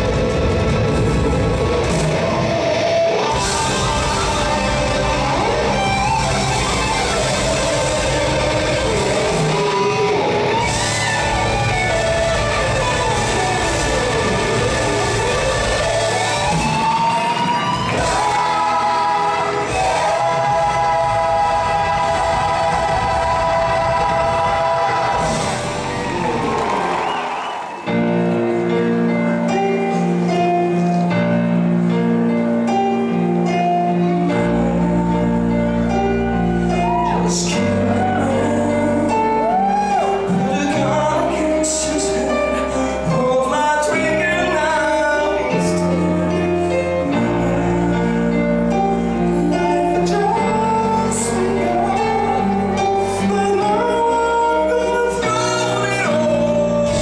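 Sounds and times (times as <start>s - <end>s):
man singing: 0.0s - 25.6s, 33.5s - 57.0s
bass line: 0.0s - 27.2s.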